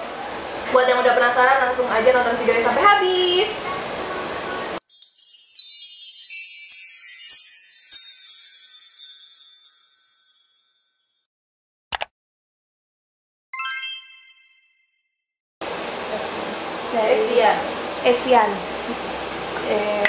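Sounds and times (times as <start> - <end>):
jingle-bell shimmer: 4.8 - 11.3, 13.6 - 14.9
sharp double click: 11.9 - 12.1
bell-like ding: 13.6 - 14.9.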